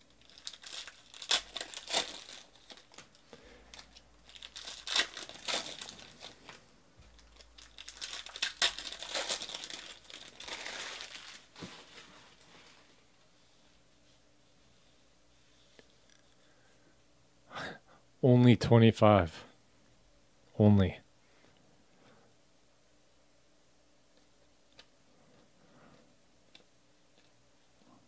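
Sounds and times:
foil wrappers crinkling and tearing: 0.1s - 12.5s.

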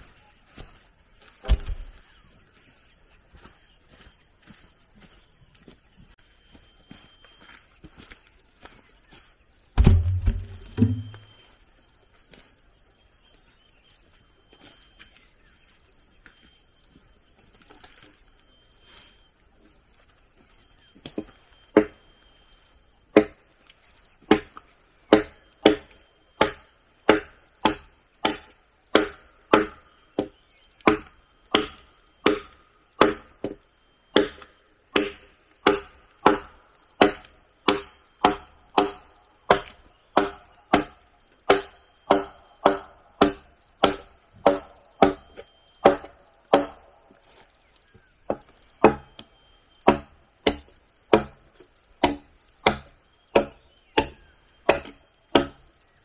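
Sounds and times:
blade chopping into wood: 9.8s - 11.3s, 52.0s - 55.6s.

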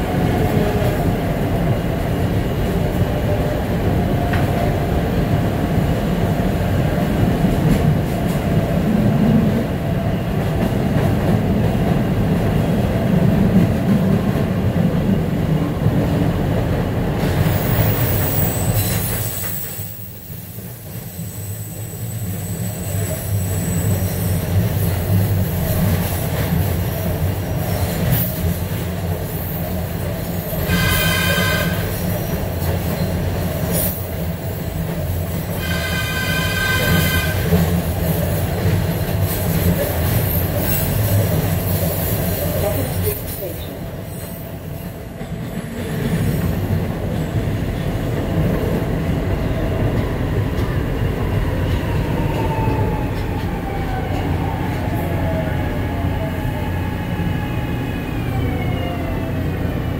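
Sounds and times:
subway car wheels rumbling: 0.0s - 59.9s.

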